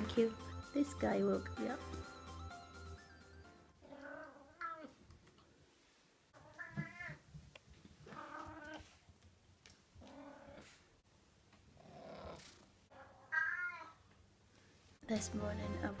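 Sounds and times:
cat meowing: 0:03.8 - 0:05.0, 0:06.4 - 0:07.2, 0:12.9 - 0:14.0.

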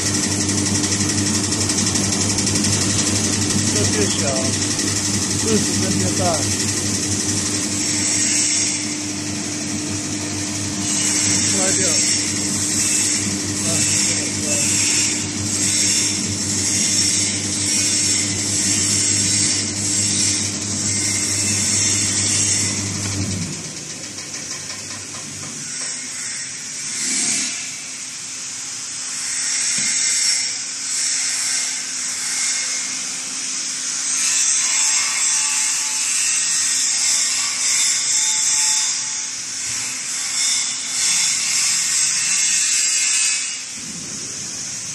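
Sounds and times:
electric motor low hum: 0:00.0 - 0:25.8.

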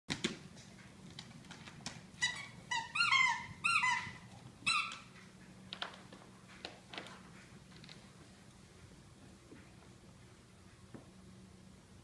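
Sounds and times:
dogs squealing: 0:02.2 - 0:05.2.

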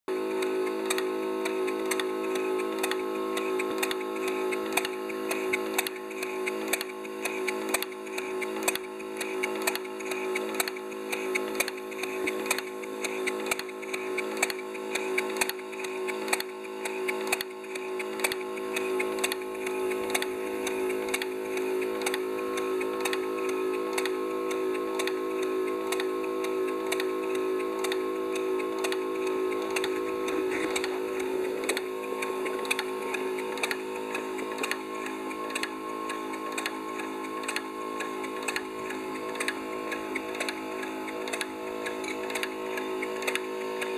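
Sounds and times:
steady hum: 0:00.1 - 0:43.9
model locomotive valve gear clicking: 0:00.3 - 0:43.9.

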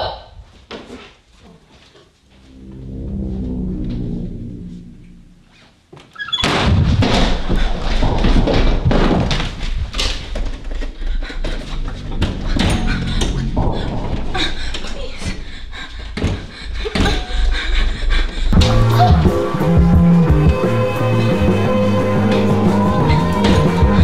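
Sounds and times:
low droning swell: 0:02.3 - 0:05.7, 0:11.6 - 0:15.7
door banging: 0:06.3 - 0:17.3
running footsteps thumping: 0:06.6 - 0:14.7.

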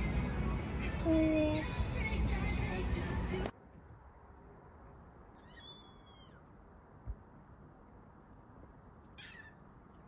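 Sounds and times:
cat meowing: 0:05.3 - 0:06.5, 0:09.1 - 0:09.7.

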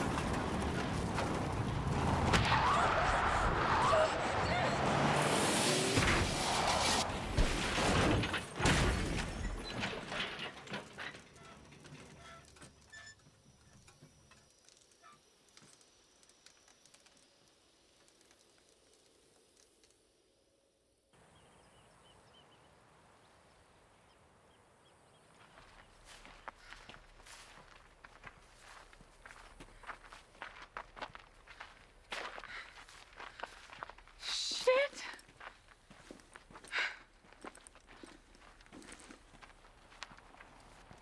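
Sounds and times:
debris clattering and ticking: 0:00.0 - 0:02.4, 0:07.1 - 0:19.7
metal impacts and crunching: 0:00.0 - 0:02.8, 0:05.4 - 0:12.6
faint outdoor hiss: 0:12.6 - 0:36.6.

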